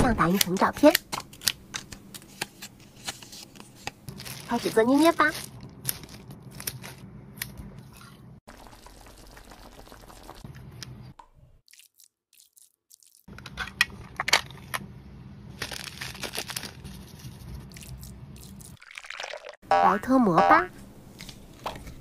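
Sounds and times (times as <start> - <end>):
plastic crinkling and crunching: 2.9 - 7.0, 15.6 - 18.8
plastic bag crinkling: 4.0 - 7.0, 15.6 - 18.6.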